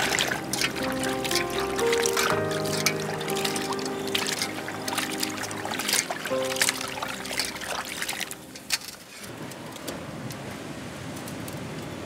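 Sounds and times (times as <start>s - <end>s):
sharp splashes: 0.0s - 9.2s
water sloshing in steel basin: 0.0s - 9.2s.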